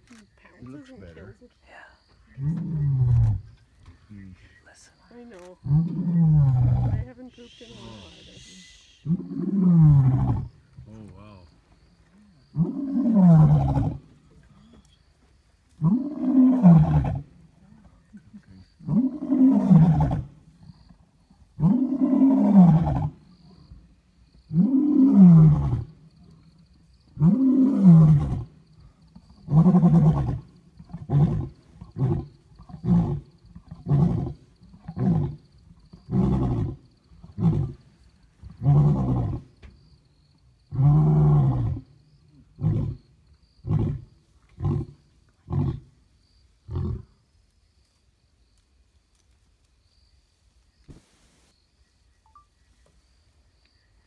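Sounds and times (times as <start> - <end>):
lion roaring: 5.6 - 7.1, 9.0 - 10.5, 12.5 - 14.1, 15.8 - 17.3, 18.8 - 20.4, 21.6 - 23.2, 24.5 - 25.9, 27.2 - 28.5, 29.4 - 37.8, 38.5 - 39.5, 40.7 - 41.8.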